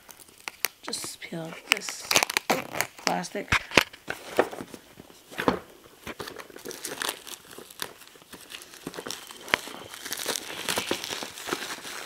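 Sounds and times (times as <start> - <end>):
plastic wrap crinkling: 0.0 - 12.0.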